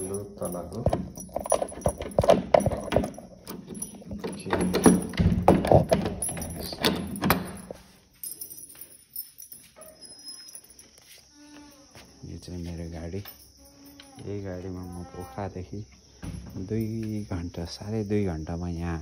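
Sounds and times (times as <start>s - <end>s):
handling clicks and knocks: 0.0s - 11.0s
keys jangling: 0.0s - 12.0s, 13.1s - 15.4s, 16.5s - 18.1s.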